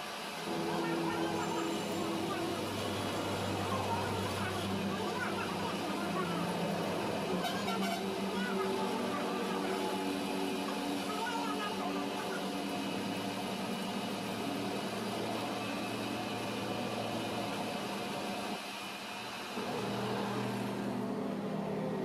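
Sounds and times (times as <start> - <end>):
metal lathe running: 0.0 - 22.0.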